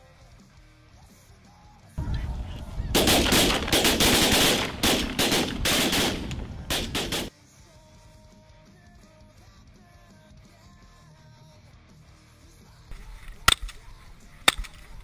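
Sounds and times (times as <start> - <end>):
shotgun shots: 2.0 - 7.3.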